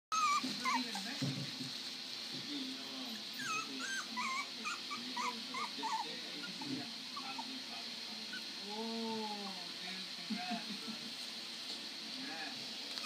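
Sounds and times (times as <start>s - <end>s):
puppies whimpering and yipping: 0.1s - 1.2s, 3.1s - 7.6s.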